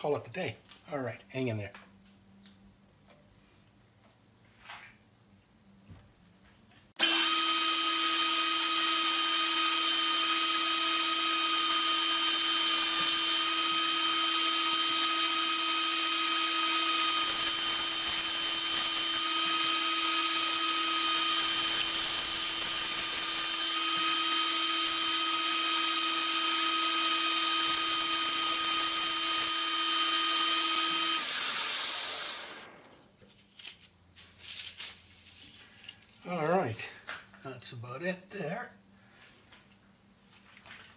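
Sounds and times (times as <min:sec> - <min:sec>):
metal lathe whining: 0:07.0 - 0:32.6.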